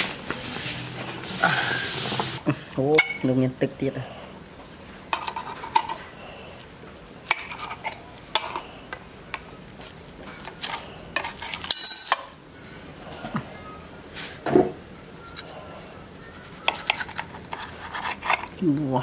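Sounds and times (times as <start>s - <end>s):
metal utensils clinking on cookware: 5.1s - 6.0s, 10.2s - 12.4s.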